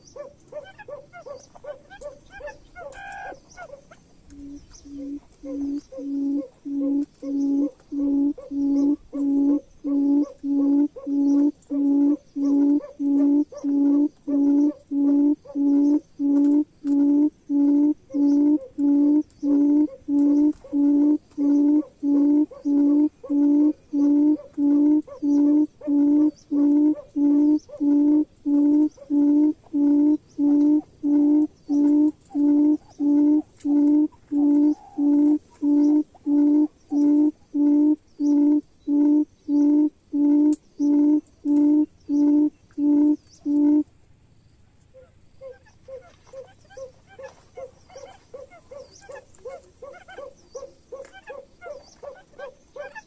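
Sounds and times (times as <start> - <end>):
bird deep hooting call: 0.0 - 43.9, 44.9 - 53.0.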